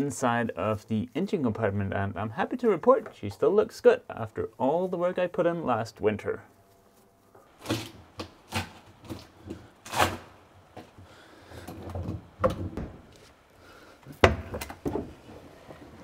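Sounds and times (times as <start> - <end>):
sharp knocks and clunks: 11.7 - 13.1, 14.2 - 15.2.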